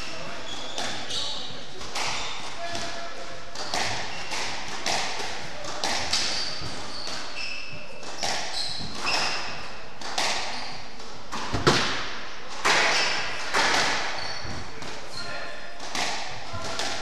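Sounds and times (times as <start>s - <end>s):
shoes squeaking on wooden floor: 0.0s - 2.4s, 6.1s - 9.6s, 12.8s - 15.4s
squash ball hitting rackets and walls: 0.0s - 17.0s.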